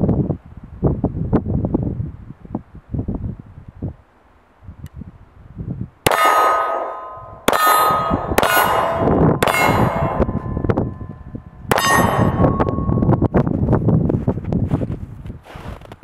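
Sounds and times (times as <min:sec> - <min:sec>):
pistol shots: 0:06.1 - 0:10.6
steel target ringing: 0:06.1 - 0:13.3.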